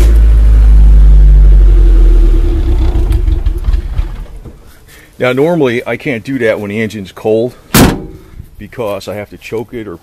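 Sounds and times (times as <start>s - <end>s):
car engine running: 0.0s - 4.6s.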